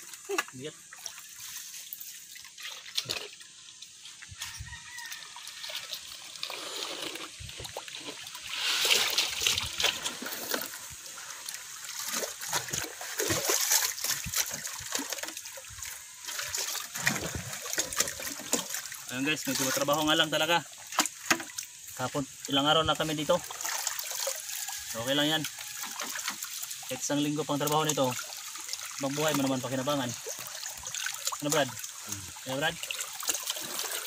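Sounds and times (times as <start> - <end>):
water splashing and pouring: 0.0 - 34.0
rooster crowing: 4.4 - 6.0, 24.3 - 26.2.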